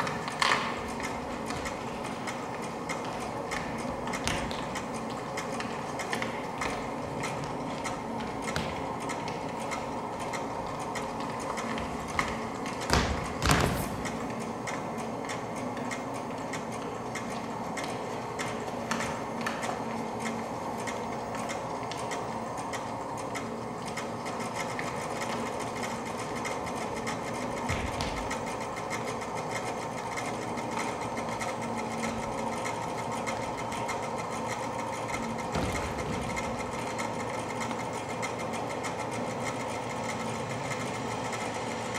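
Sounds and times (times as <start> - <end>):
loud knocks: 12.8 - 13.9.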